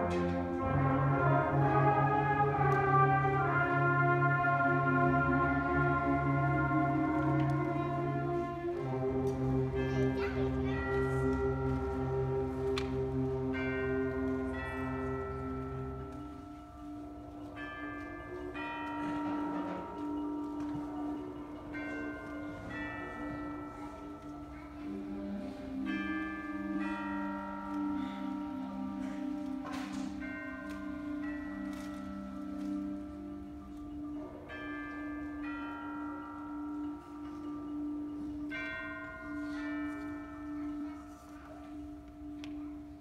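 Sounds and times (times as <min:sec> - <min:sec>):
tubular chimes ringing: 0:00.0 - 0:43.0.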